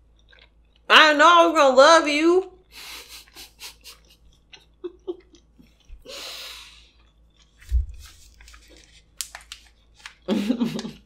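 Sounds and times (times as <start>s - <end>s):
person chewing: 0.0s - 0.9s, 2.7s - 10.3s.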